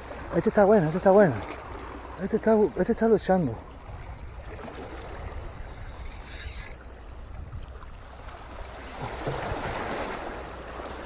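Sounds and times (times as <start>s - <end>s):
wind on microphone: 3.7s - 10.2s
sea water washing against rocks: 3.7s - 11.0s.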